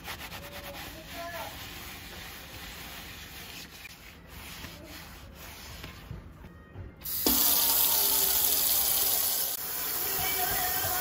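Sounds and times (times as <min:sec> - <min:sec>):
faint rubbing strokes: 0:00.0 - 0:06.3
tap water running into sink: 0:07.0 - 0:11.0.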